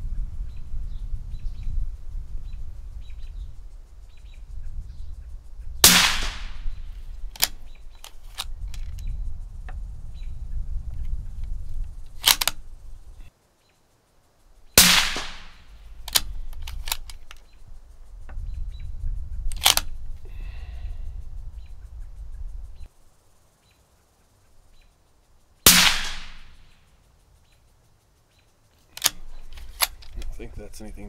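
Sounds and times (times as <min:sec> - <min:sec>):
suppressed rifle shots: 0:05.8 - 0:07.6, 0:14.8 - 0:17.1, 0:25.6 - 0:26.7
rifle bolt metallic clicks: 0:07.3 - 0:09.1, 0:12.1 - 0:12.6, 0:14.8 - 0:17.5, 0:19.5 - 0:19.9, 0:28.9 - 0:30.4.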